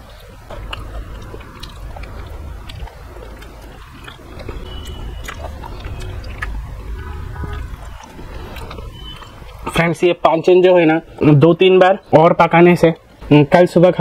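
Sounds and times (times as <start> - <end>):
chewing food: 0.0 - 9.8.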